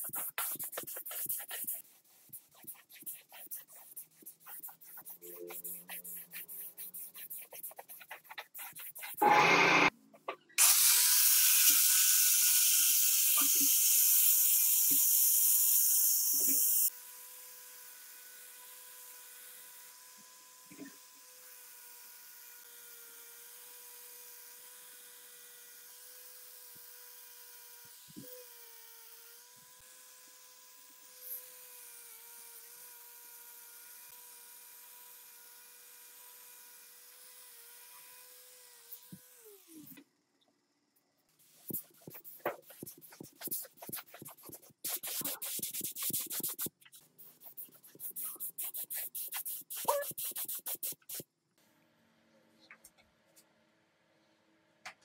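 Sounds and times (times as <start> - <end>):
angle grinder whine: 9.2 - 9.9.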